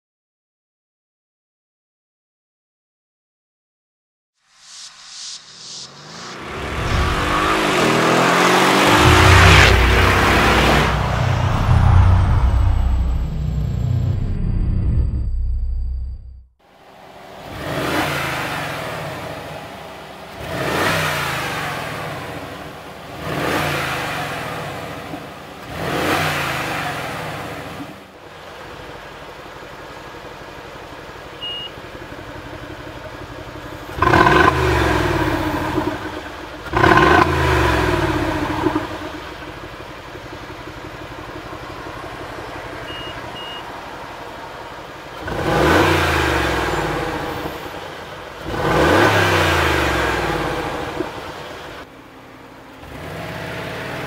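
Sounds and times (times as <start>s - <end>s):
car engine revving: 4.7s - 29.6s, 32.2s - 51.9s, 52.5s - 54.0s
car engine idling: 6.4s - 14.2s, 16.7s - 23.4s, 26.9s - 54.0s
short beep: 31.4s - 31.8s, 42.8s - 43.7s.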